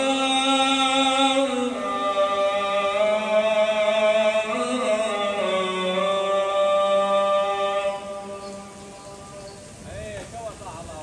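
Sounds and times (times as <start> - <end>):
man chanting call to prayer: 0.0 - 8.7.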